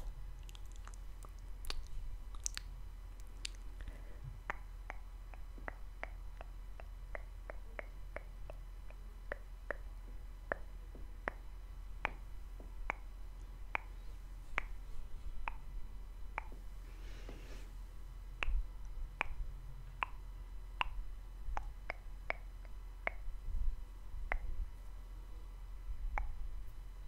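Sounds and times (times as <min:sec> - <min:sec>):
mouth clicks: 0:00.0 - 0:03.9, 0:20.8 - 0:23.3, 0:26.1 - 0:26.4.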